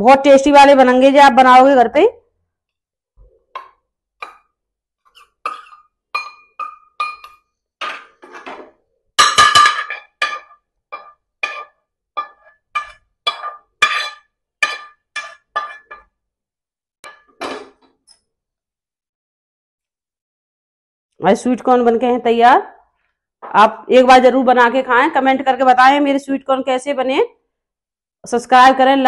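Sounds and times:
metal spoon clinking on bowl: 5.2s - 8.0s.

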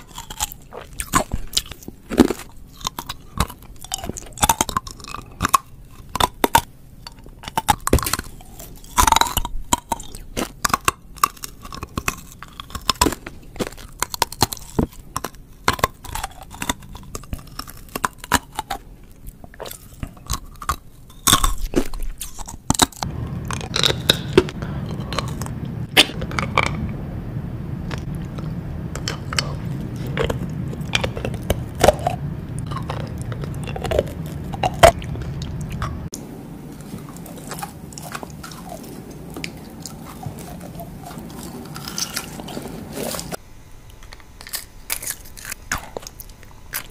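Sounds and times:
crunching hard candy: 0.0s - 26.9s, 27.9s - 46.9s
steady low hum: 0.0s - 46.9s.

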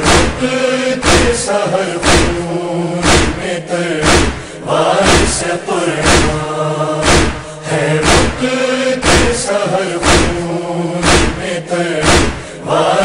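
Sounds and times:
chest-beating thumps: 0.0s - 1.4s, 2.0s - 2.4s, 3.0s - 3.4s, 4.0s - 5.4s, 6.0s - 6.4s, 7.0s - 8.4s, 9.0s - 9.4s, 10.0s - 10.4s, 11.0s - 11.4s, 12.0s - 12.5s
chorus chanting a lament: 0.0s - 13.0s.

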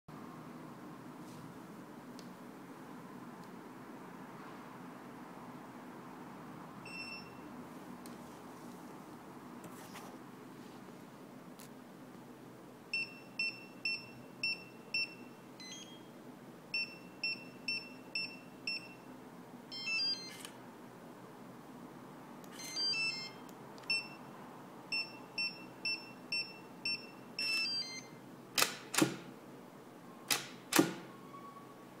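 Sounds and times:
keypad beeps: 6.9s - 7.4s, 13.0s - 16.1s, 16.8s - 19.1s, 19.7s - 20.5s, 22.5s - 24.3s, 24.9s - 28.2s
multi-tone lock chime: 15.0s - 16.1s, 22.6s - 24.2s, 25.0s - 28.1s
loud sharp lock clicks: 28.6s - 29.3s, 30.3s - 31.1s.

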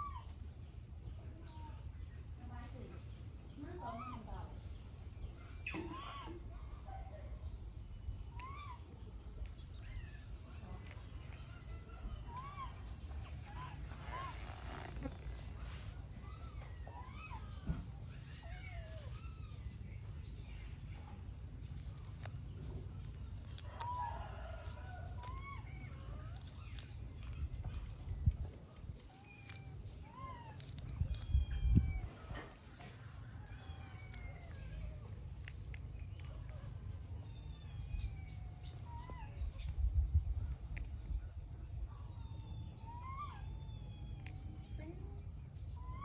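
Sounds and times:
young animal squeaky cries: 0.0s - 0.5s, 3.6s - 4.6s, 5.5s - 6.6s, 8.2s - 46.0s
steady low rumble: 7.6s - 42.7s.

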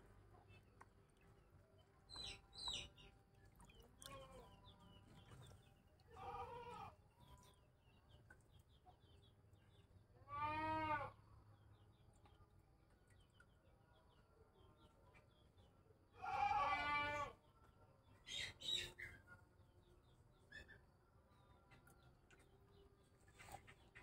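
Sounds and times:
small bird chirps: 18.2s - 19.3s.

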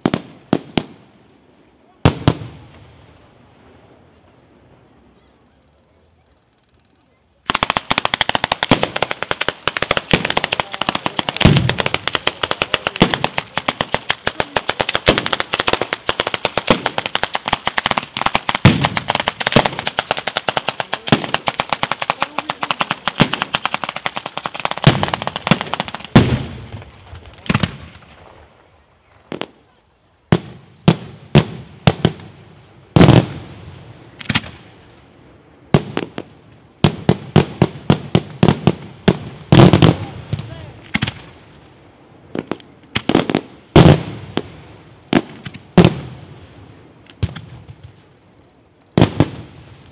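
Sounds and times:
loud firework bangs: 2.0s - 3.1s, 7.5s - 28.5s, 30.3s - 34.8s, 35.7s - 41.6s, 42.3s - 48.0s, 49.0s - 49.9s
firecracker cracks and bangs: 7.5s - 28.5s, 34.1s - 34.7s, 35.7s - 41.4s, 42.3s - 44.5s, 47.0s - 48.1s.

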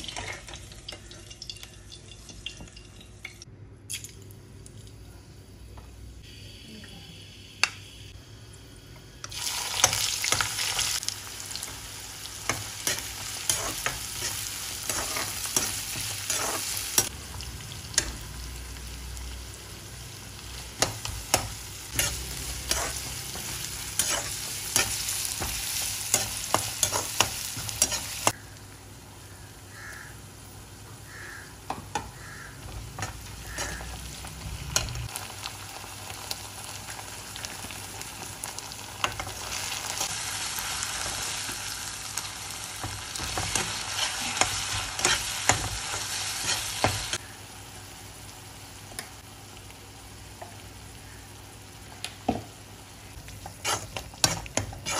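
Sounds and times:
vegetables sizzling in hot oil: 6.2s - 54.9s
metal spoon scraping a wok: 53.4s - 54.9s.

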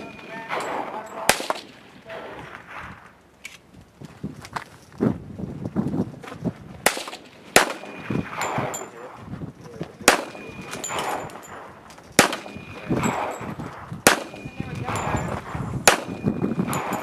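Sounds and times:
steel target ringing: 0.0s - 1.8s, 7.2s - 9.0s, 10.1s - 11.6s, 12.2s - 17.0s
loud handgun shots: 0.0s - 3.0s, 6.8s - 9.0s, 10.0s - 17.0s.

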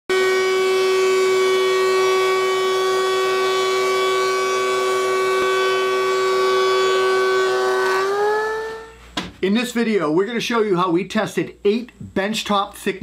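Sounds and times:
thickness planer whining: 0.1s - 9.0s.

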